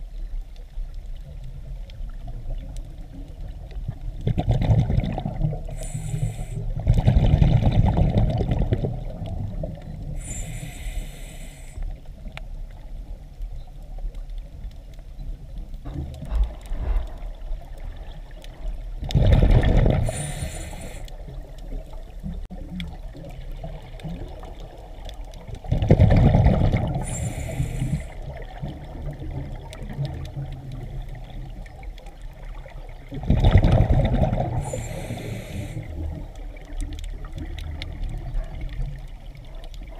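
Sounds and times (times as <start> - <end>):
exhaled bubbles gurgling underwater: 0.0 - 39.9
low rumble of water: 0.0 - 39.9
regulator hiss: 5.7 - 6.8, 10.2 - 11.8, 20.0 - 21.1, 27.0 - 28.2, 34.6 - 36.0.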